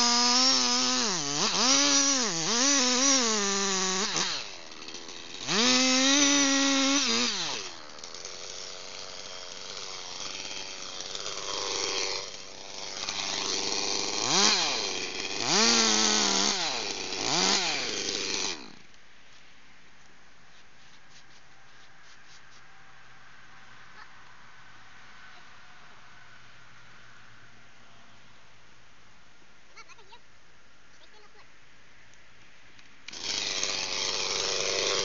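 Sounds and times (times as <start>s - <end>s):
chainsaw cutting tree trunk: 0.0s - 18.9s, 33.1s - 35.0s.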